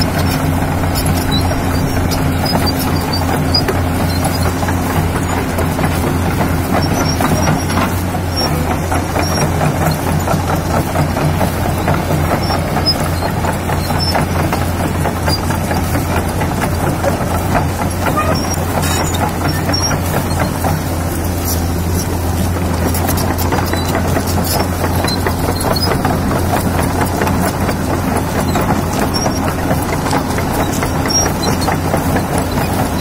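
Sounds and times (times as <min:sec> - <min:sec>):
excavator diesel engine running: 0:00.0 - 0:33.0.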